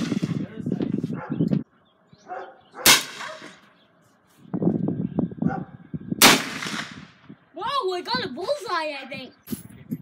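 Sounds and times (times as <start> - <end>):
rifle shots: 0.0 - 0.4, 2.8 - 3.6, 6.2 - 7.2.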